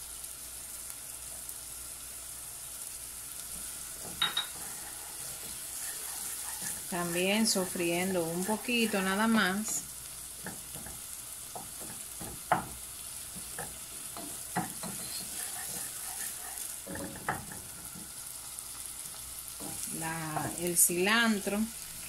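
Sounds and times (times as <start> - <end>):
vegetables sizzling in butter: 0.0 - 22.0
wooden spoon stirring and scraping: 3.4 - 21.5
spoon knocking against pot: 4.1 - 4.6, 11.6 - 12.8, 13.4 - 15.1.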